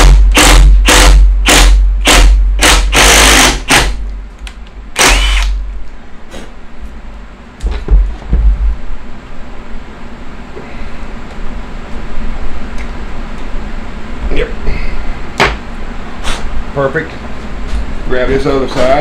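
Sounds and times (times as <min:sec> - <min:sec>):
cordless drill boring into wood: 0:00.3 - 0:03.9, 0:05.0 - 0:05.6.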